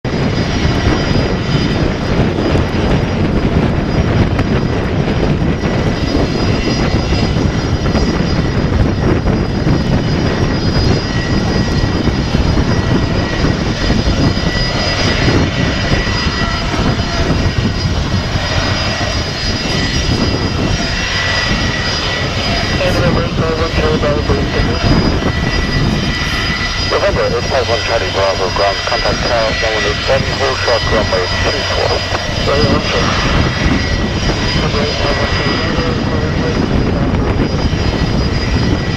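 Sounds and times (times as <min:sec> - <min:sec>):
jet engine rumble: 0:00.0 - 0:38.9
thin high jet whine: 0:00.1 - 0:38.9.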